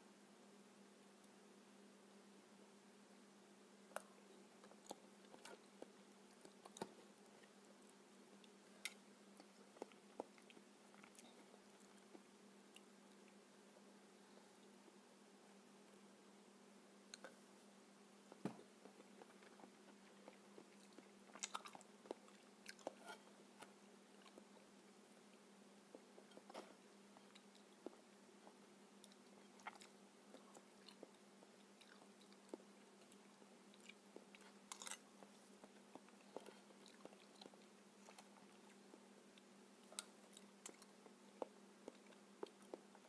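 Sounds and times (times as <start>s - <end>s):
faint steady hum: 0.0s - 43.0s
chewing and wet mouth sounds: 4.0s - 13.4s, 18.8s - 43.0s.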